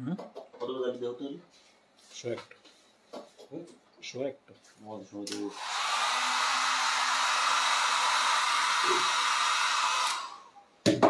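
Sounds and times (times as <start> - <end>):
hair dryer blowing: 5.3 - 10.5.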